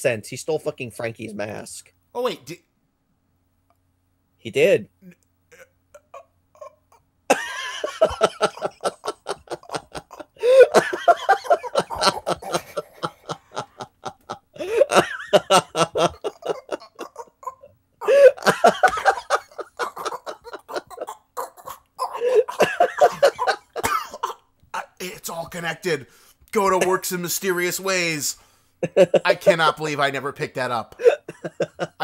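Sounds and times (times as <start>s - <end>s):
people laughing hard: 7.3s - 21.1s, 22.2s - 24.9s, 28.8s - 29.4s, 31.0s - 32.0s.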